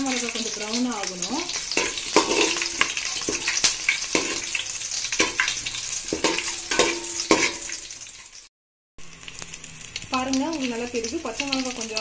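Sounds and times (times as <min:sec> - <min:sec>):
spices sizzling in oil: 0:00.0 - 0:12.0
metal spatula scraping pot: 0:01.3 - 0:08.4.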